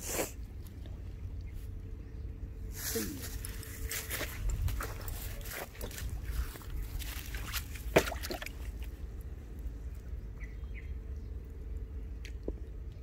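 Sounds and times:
fish splashing in shallow water: 0:05.0 - 0:09.1.

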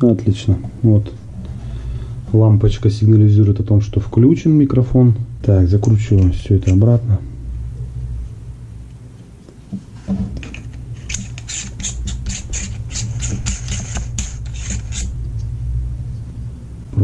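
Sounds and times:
low handling noise rumble: 0:14.4 - 0:17.0.

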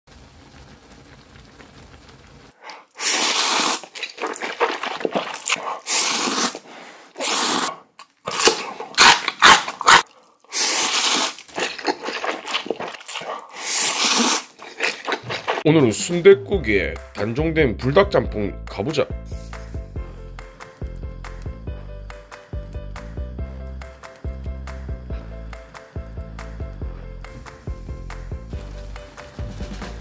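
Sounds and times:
crunching bites of kimchi: 0:02.6 - 0:15.7
noodles slurped: 0:02.6 - 0:15.7.

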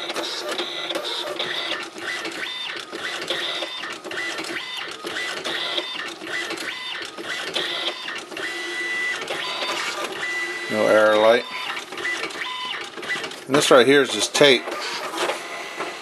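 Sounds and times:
printer clicks: 0:00.0 - 0:10.4, 0:11.5 - 0:16.0
printer motor whine: 0:00.0 - 0:16.0.

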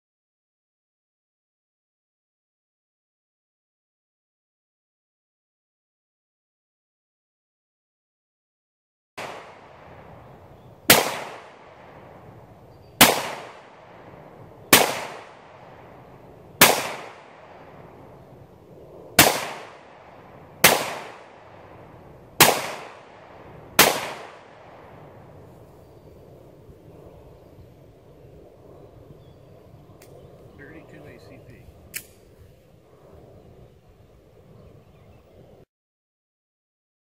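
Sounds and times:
gunshots: 0:09.2 - 0:10.2, 0:10.9 - 0:12.0, 0:13.0 - 0:18.0, 0:19.2 - 0:25.0.

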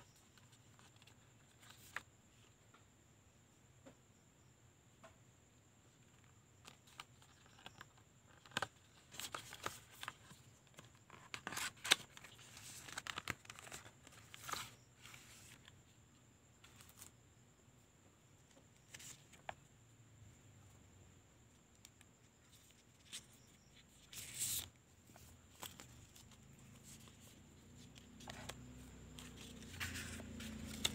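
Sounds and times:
cardboard packaging rustling: 0:24.0 - 0:30.9.

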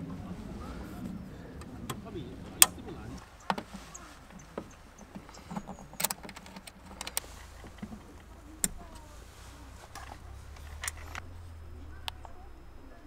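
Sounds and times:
low hum: 0:00.0 - 0:13.0
light clicks and taps: 0:01.0 - 0:09.2.

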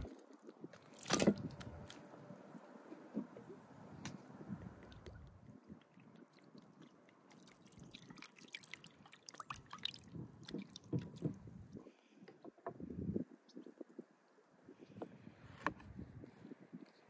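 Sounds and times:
hand squelching liver: 0:05.8 - 0:11.4
milk splashing into bowl: 0:06.0 - 0:11.4.

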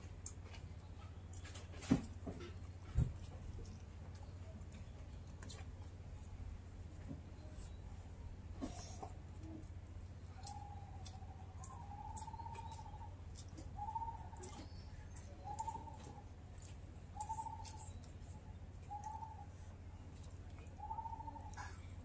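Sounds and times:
steady low hum: 0:00.0 - 0:22.0
bird calling with trilled notes: 0:10.3 - 0:16.3, 0:17.1 - 0:18.2, 0:18.8 - 0:19.4, 0:20.8 - 0:21.8.

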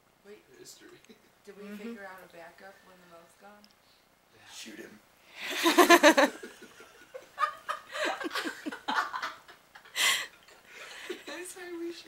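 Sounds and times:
people laughing: 0:05.5 - 0:09.9.

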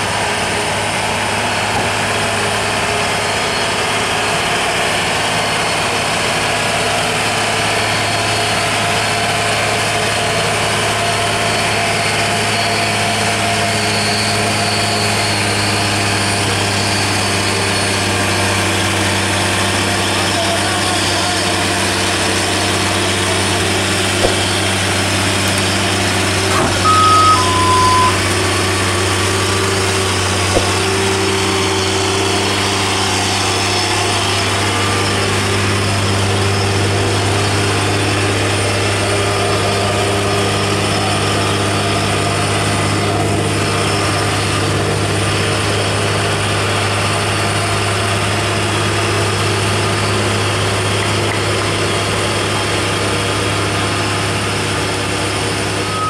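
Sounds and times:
truck diesel engine humming: 0:00.0 - 0:56.0
two-note truck horn: 0:26.4 - 0:29.0.

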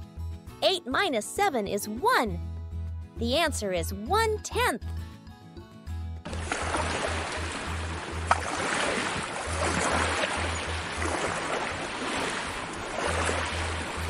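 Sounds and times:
ocean waves washing: 0:06.3 - 0:14.0.

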